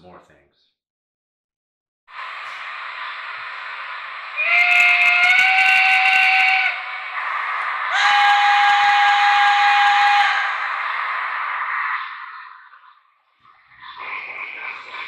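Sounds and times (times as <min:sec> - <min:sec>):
steam hissing: 0:02.1 - 0:15.0
steam locomotive whistle: 0:04.3 - 0:10.7.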